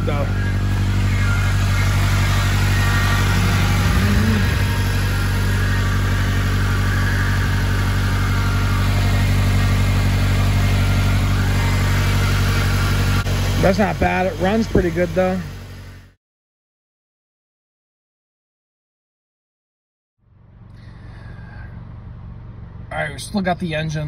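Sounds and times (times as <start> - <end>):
power steering pump noise: 0.0 - 16.0
car engine idling: 0.0 - 16.2, 20.3 - 24.0.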